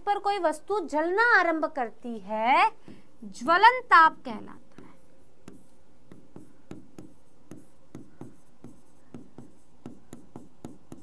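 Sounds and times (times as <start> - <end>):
chalk writing on chalkboard: 2.6 - 11.0.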